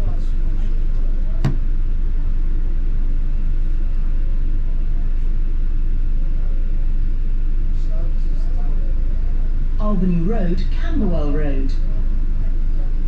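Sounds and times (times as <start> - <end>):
sharp knock: 1.4 - 1.7
bus engine rumbling: 9.7 - 11.6.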